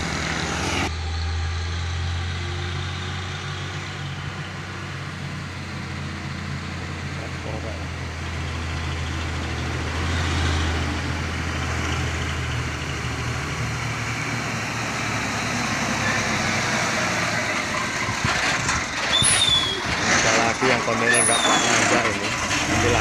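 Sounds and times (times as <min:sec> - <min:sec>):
diesel truck engine drone: 0:00.0 - 0:23.0
short high squeal: 0:19.0 - 0:20.1, 0:21.0 - 0:22.0.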